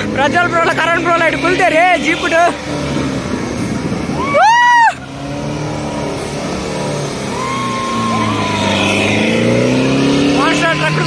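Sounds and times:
vehicle engine revving: 0.0 - 11.0
shrill whoop: 4.2 - 5.1, 7.2 - 9.1.

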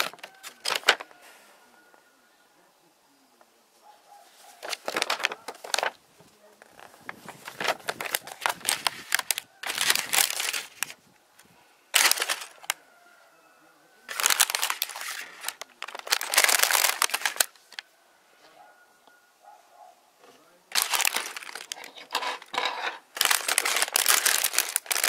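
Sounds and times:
plastic bag crinkling: 0.0 - 1.0, 4.6 - 6.0, 6.6 - 11.0, 11.9 - 12.8, 14.1 - 17.8, 20.7 - 25.0
paper sheet rustling: 0.0 - 1.1, 4.4 - 6.0, 6.6 - 11.0, 12.0 - 12.8, 14.1 - 17.8, 20.7 - 25.0.

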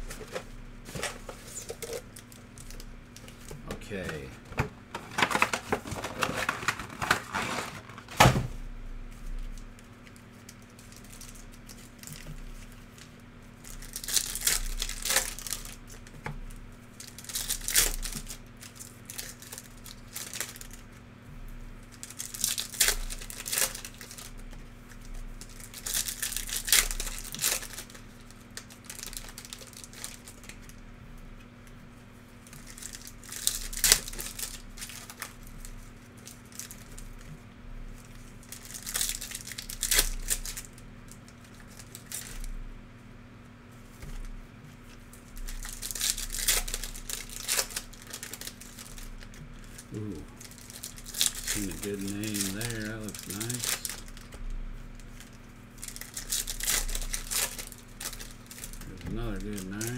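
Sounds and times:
card wrappers tearing and crinkling: 0.0 - 4.3, 4.9 - 8.4, 9.5 - 21.0, 21.8 - 30.8, 32.3 - 37.3, 37.9 - 42.5, 43.8 - 59.9.

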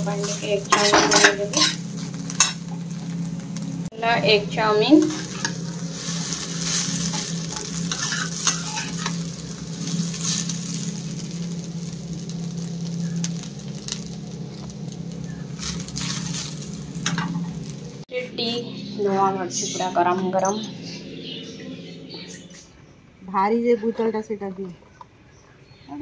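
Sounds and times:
noodles sizzling in a frying pan: 0.0 - 18.1
spatula scraping a pan: 0.1 - 2.6, 5.0 - 10.8, 15.6 - 17.4.

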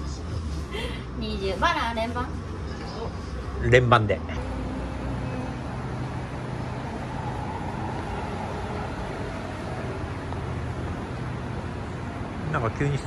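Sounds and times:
distant road traffic: 0.0 - 13.0.

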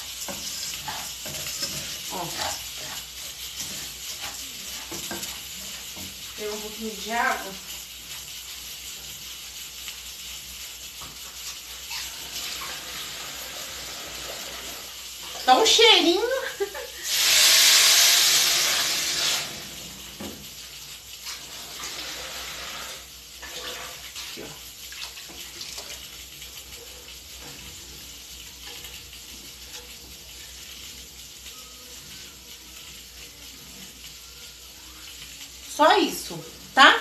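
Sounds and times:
water pouring and simmering: 0.0 - 37.0
water sizzling in hot pot: 0.0 - 37.0.

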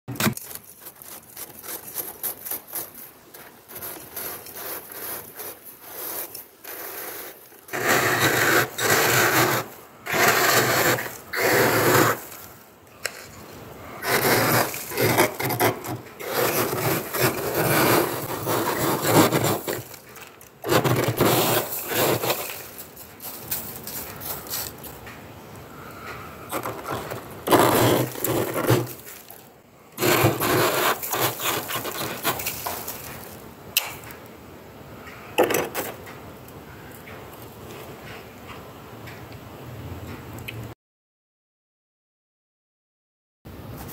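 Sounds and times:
metal spoon scraping frost: 0.2 - 24.9, 26.5 - 33.4.

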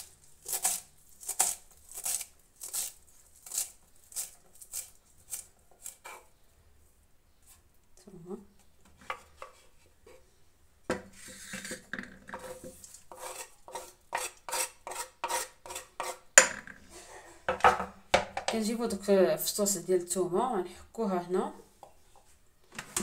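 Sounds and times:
knife scraping cutting board: 0.0 - 6.3, 11.0 - 16.2.

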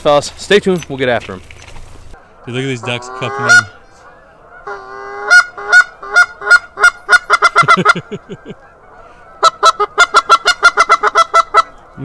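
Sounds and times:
goose honking: 2.2 - 12.0.

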